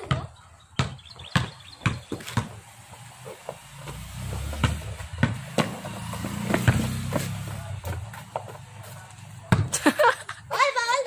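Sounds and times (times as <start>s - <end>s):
basketball bouncing on concrete: 0.0s - 9.8s
passing vehicle engine hum: 2.0s - 9.5s.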